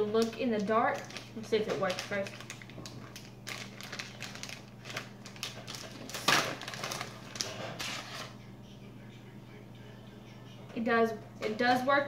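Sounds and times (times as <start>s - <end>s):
plastic package crinkling: 0.1s - 8.4s.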